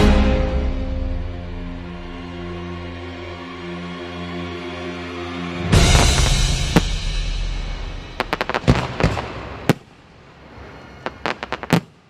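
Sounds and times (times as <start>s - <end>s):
firework burst rumble: 5.8s - 12.0s
sharp firework cracks: 5.9s - 12.0s.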